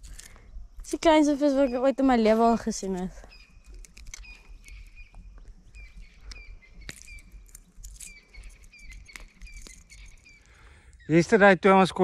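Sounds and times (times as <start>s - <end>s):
bird chirping: 0.0s - 12.0s
sharp light clicks: 2.8s - 10.6s.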